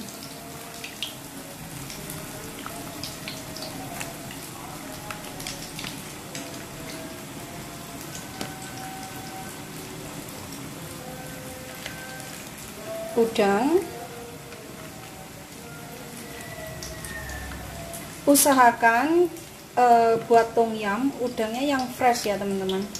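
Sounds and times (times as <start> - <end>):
broth boiling and bubbling: 0.0 - 13.7, 14.3 - 19.7.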